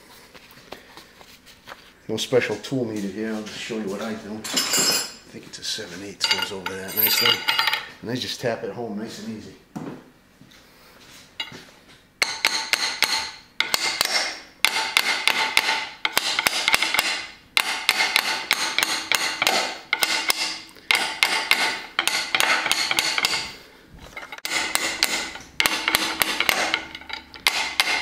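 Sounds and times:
wrench ringing metallically: 6.2 - 7.9, 24.4 - 28.0
hammer tapping metal wrench: 12.2 - 23.6, 24.2 - 28.0.

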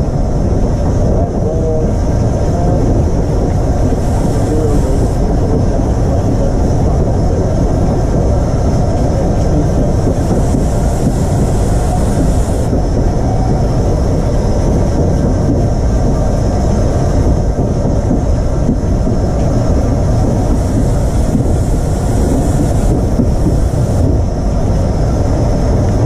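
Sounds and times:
high steam hiss: 0.0 - 26.0
steam locomotive rumble: 0.0 - 26.0.

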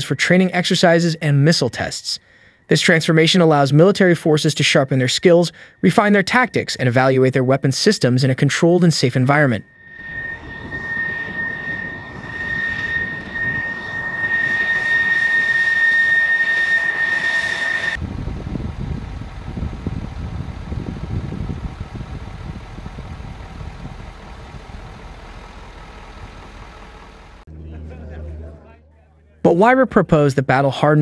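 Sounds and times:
jet engine whining: 8.6 - 28.9
jet engine low rumble: 9.3 - 28.8.

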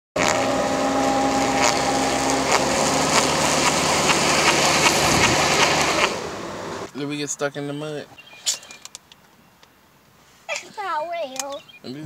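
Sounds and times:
car engine running: 0.2 - 6.9.

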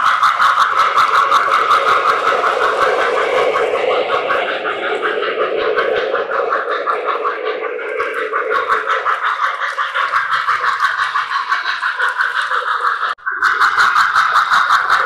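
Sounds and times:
model train wheels clicking: 0.0 - 15.0.

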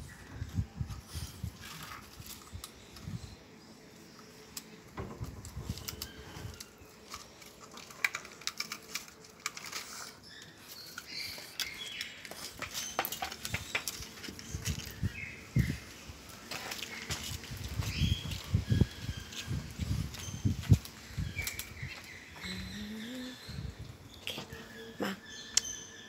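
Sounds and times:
small clicks and scrapes: 4.1 - 15.0
puppies mouthing a wooden board: 5.4 - 15.0.

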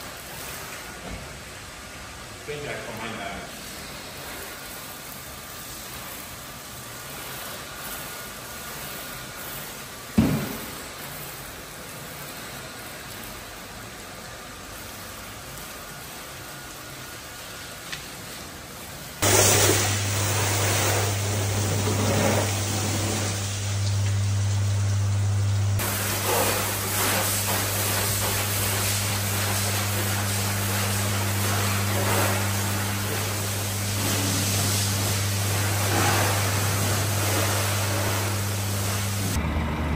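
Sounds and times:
pressure washer spray hissing: 0.0 - 1.4, 2.5 - 39.4
low hum of machinery: 0.0 - 39.9
thump: 10.2 - 10.8.

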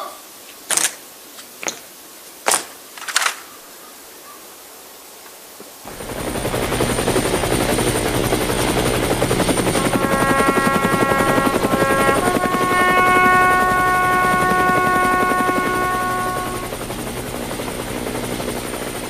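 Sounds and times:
flag flapping in strong wind: 5.8 - 15.7
steady tones: 5.9 - 19.0.

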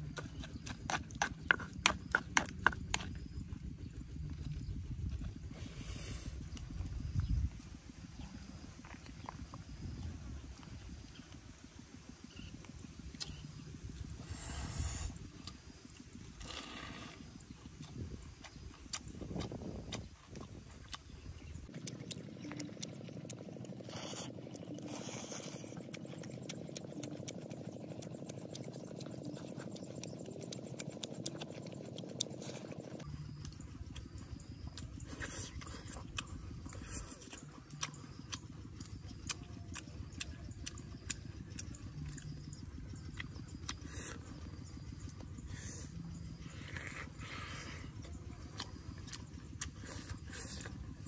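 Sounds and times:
person chewing and lip-smacking: 0.0 - 3.6, 4.2 - 5.3, 13.1 - 13.5, 17.7 - 44.3, 45.0 - 50.9.

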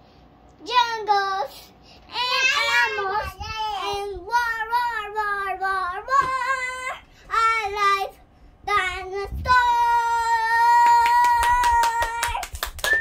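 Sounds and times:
girl singing: 0.6 - 12.5
fast sharp claps: 10.8 - 13.0.

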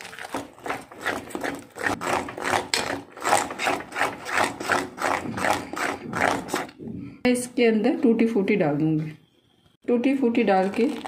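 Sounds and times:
whisk scraping batter in bowl: 0.0 - 6.8.

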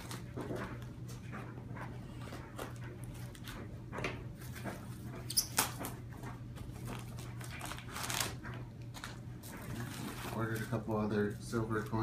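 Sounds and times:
cardboard and paper rustling: 6.6 - 12.0.

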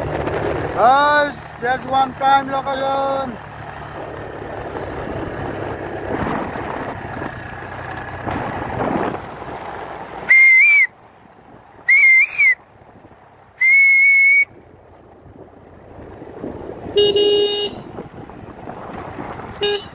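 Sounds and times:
motorcycle wind and road noise: 0.0 - 19.9
high-pitched whistle blasts: 10.3 - 10.9, 11.9 - 12.6, 13.6 - 14.5.

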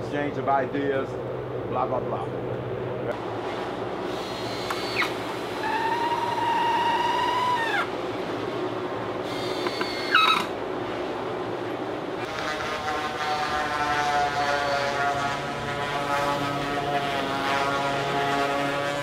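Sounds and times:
cordless drill whirring: 4.1 - 7.9, 9.2 - 10.5
drone of held tones: 4.2 - 7.9, 9.2 - 10.6.

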